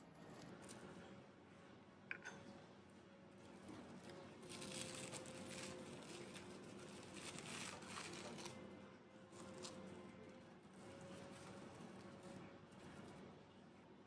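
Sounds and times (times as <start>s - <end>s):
plastic wrap crinkling: 3.4s - 8.7s, 9.3s - 13.2s.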